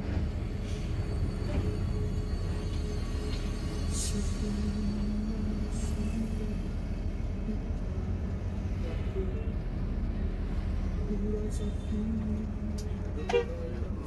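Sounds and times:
bus engine and road rumble: 0:00.0 - 0:14.0.

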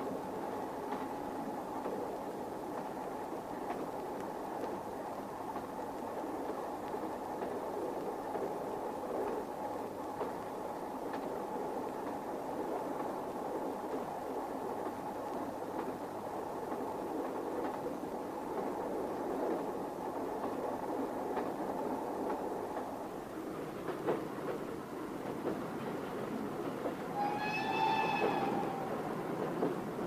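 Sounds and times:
moving train running: 0:00.0 - 0:30.0.

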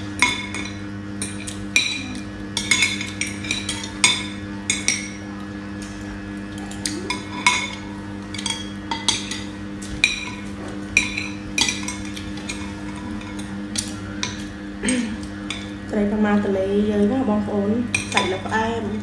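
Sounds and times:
steady low hum: 0:00.0 - 0:19.0
cutlery clinking on ceramic plates: 0:00.2 - 0:05.2, 0:06.7 - 0:15.7, 0:17.9 - 0:18.5.

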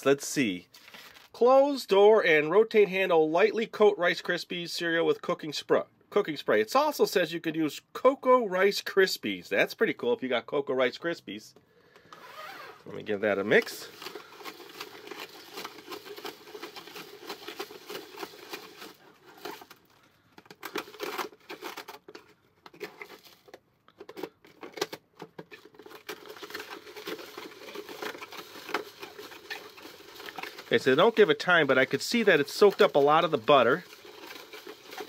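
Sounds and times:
cereal rattling in plastic cylinder: 0:13.0 - 0:35.0.

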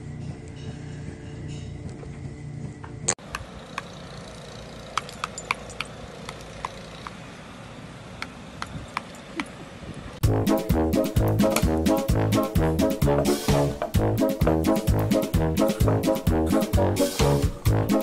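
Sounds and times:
light metallic clinks: 0:03.7 - 0:07.2, 0:08.6 - 0:09.6.

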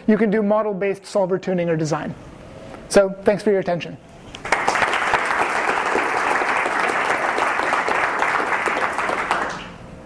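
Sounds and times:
audience clapping: 0:04.4 - 0:09.8.

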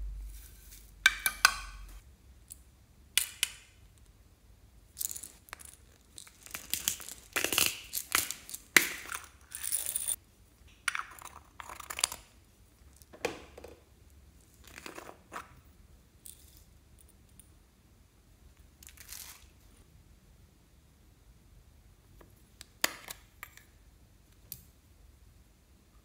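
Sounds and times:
slime squelching and crackling: 0:06.0 - 0:09.0.

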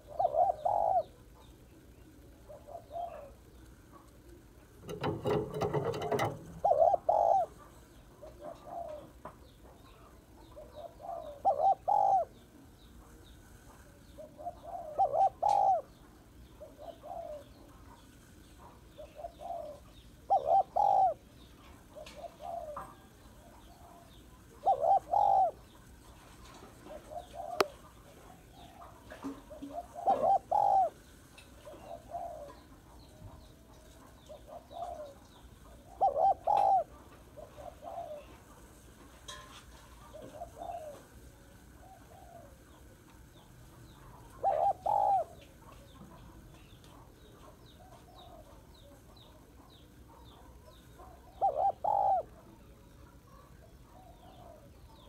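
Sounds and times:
dove cooing: 0:00.0 - 0:12.8, 0:13.9 - 0:18.0, 0:18.6 - 0:43.0, 0:43.9 - 0:46.3, 0:46.9 - 0:55.0.

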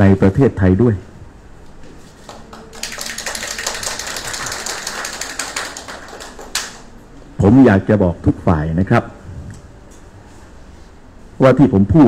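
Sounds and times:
audience applauding: 0:02.2 - 0:06.9.

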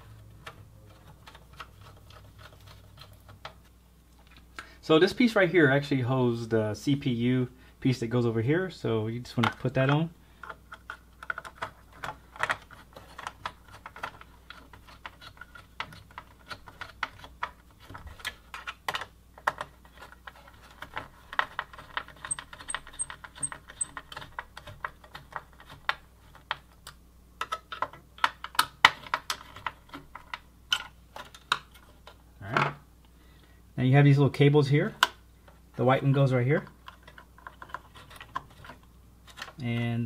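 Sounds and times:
computer parts clicking and tapping: 0:18.2 - 0:31.8.

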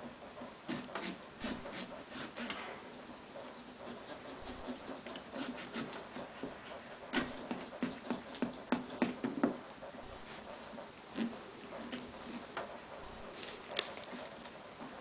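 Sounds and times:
hand tool scraping pumpkin rind: 0:00.7 - 0:02.7, 0:04.0 - 0:06.4.

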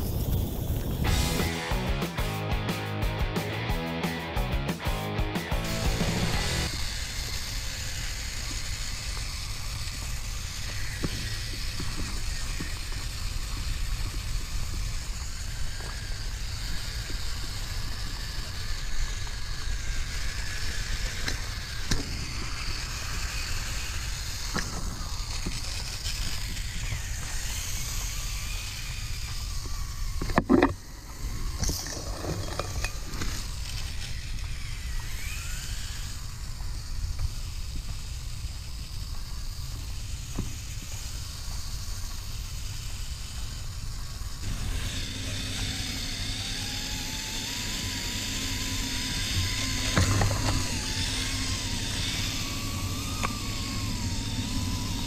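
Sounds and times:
rc car motor and gear whine: 0:00.0 - 0:55.0.

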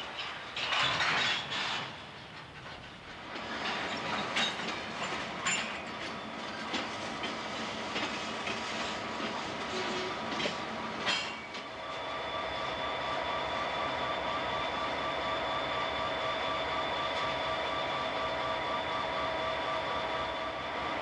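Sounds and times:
wheels clicking over rail joints: 0:00.0 - 0:11.8
freight train rolling past: 0:00.0 - 0:21.0.

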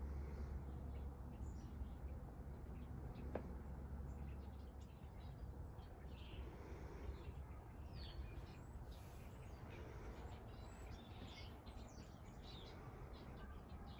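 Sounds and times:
low steady background rumble: 0:00.0 - 0:13.9
faint bird chirps: 0:03.1 - 0:13.9.

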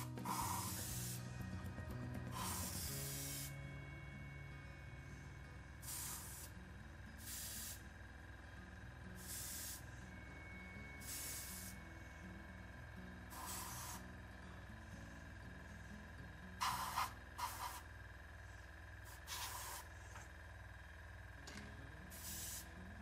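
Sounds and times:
airbrush hissing bursts: 0:00.0 - 0:01.4, 0:02.3 - 0:03.6, 0:05.8 - 0:06.6, 0:07.2 - 0:08.0, 0:09.2 - 0:10.0, 0:11.0 - 0:12.0, 0:13.3 - 0:14.1, 0:16.6 - 0:18.0, 0:19.0 - 0:20.2, 0:22.1 - 0:22.8.

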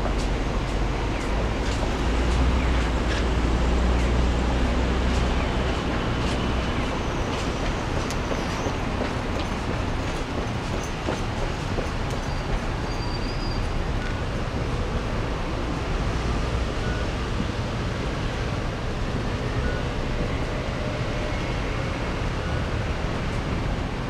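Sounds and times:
train passing: 0:00.0 - 0:16.1
traffic rumble: 0:00.0 - 0:24.0.

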